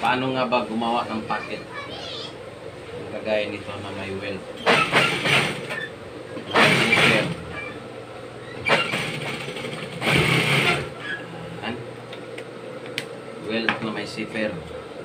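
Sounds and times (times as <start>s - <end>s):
motor hum: 0.0s - 15.0s
sewing machine stitching: 4.6s - 5.8s, 6.5s - 7.4s, 8.7s - 10.9s.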